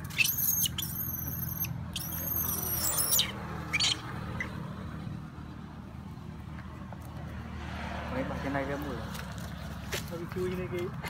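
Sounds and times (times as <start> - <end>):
young monkey squealing: 0.0 - 4.6.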